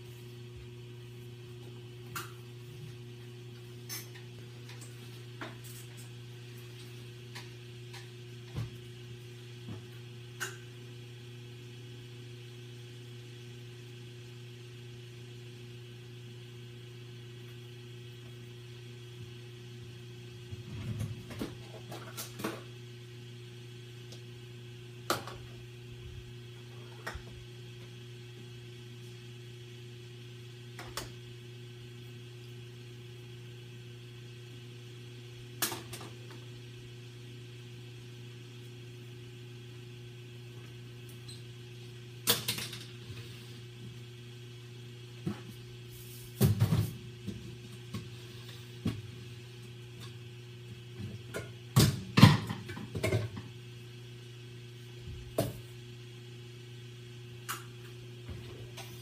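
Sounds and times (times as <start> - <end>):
electrical hum of appliances: 0.0 - 59.0.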